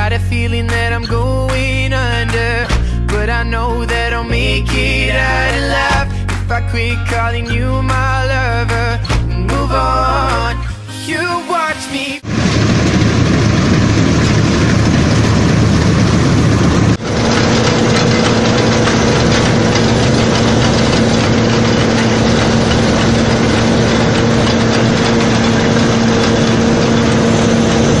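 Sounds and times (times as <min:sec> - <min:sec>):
combine harvester machinery din: 0:00.0 - 0:10.6, 0:12.2 - 0:28.0
steady hum: 0:12.2 - 0:28.0.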